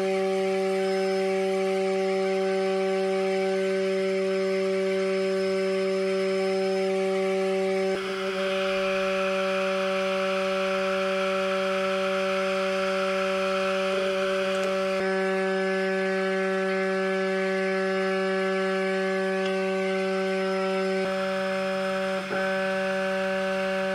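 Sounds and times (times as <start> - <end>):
small electric motor whining: 0.0 - 23.9.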